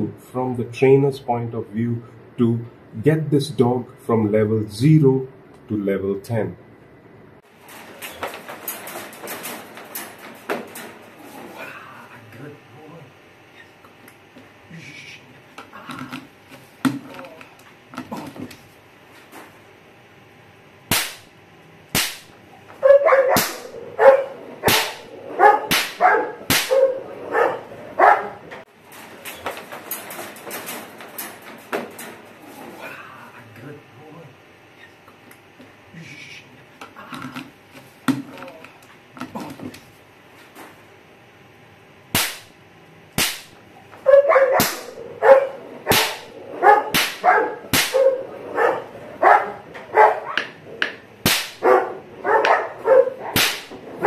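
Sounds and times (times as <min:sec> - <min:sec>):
sharp knocks or bangs: 0:20.9 - 0:21.3, 0:21.9 - 0:22.4, 0:43.2 - 0:43.6, 0:46.9 - 0:48.0
dog barking: 0:22.8 - 0:28.5, 0:44.0 - 0:50.6, 0:51.6 - 0:54.0.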